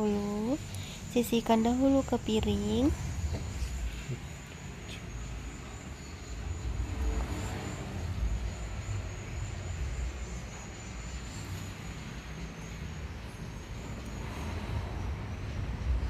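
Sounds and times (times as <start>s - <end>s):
low rumble: 2.1s - 7.3s.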